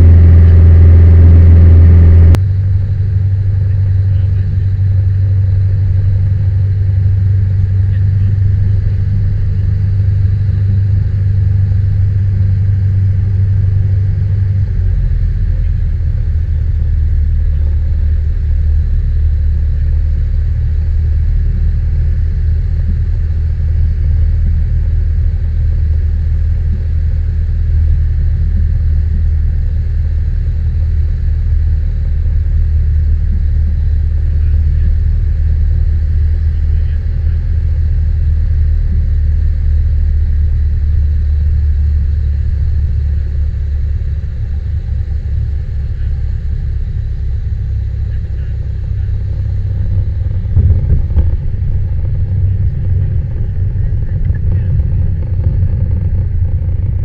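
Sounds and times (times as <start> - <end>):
propeller plane engine droning: 0.0 - 57.0.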